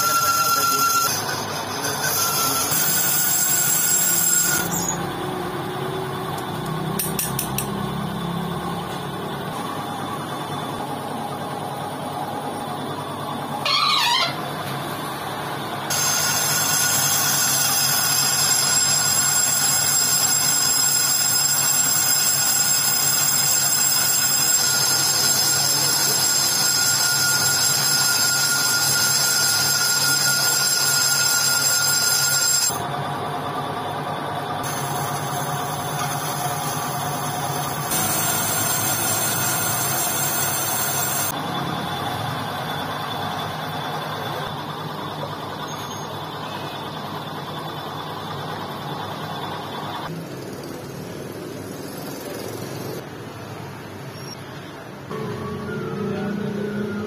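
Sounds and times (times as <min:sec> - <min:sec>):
brief squeal: 0:00.0 - 0:05.1, 0:13.6 - 0:14.4, 0:15.9 - 0:32.7, 0:45.6 - 0:46.9, 0:55.1 - 0:57.0
high-pitched cutting ring: 0:00.0 - 0:08.6, 0:15.9 - 0:32.9, 0:34.6 - 0:41.4
metal lathe running: 0:00.0 - 0:50.5.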